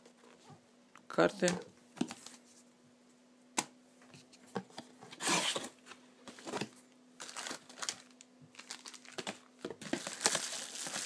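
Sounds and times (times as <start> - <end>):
paper and cardboard rustling: 4.1 - 11.0.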